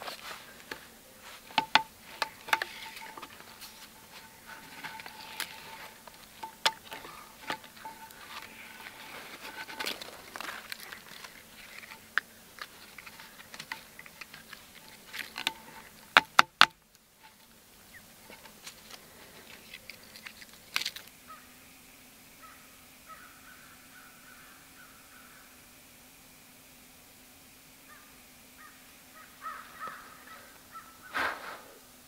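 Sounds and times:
cord rustling: 0:00.0 - 0:16.2.

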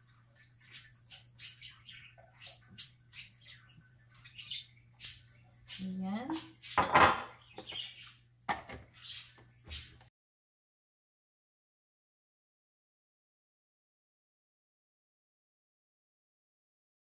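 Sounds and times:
plastic kitchenware clattering: 0:06.8 - 0:07.8, 0:08.5 - 0:08.9.

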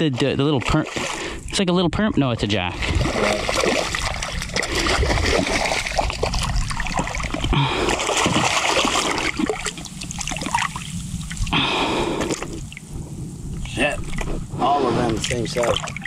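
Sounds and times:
fish thrashing and splashing: 0:00.0 - 0:01.4, 0:02.8 - 0:12.9, 0:15.2 - 0:16.0.

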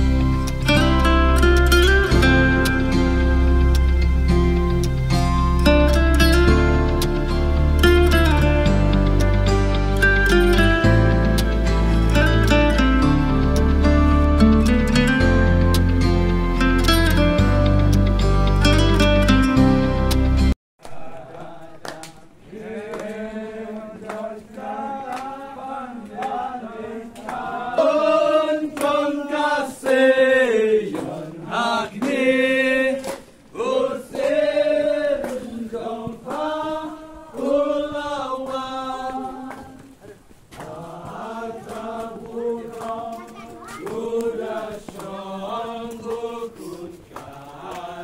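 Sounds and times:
group of voices singing: 0:20.8 - 0:48.0.

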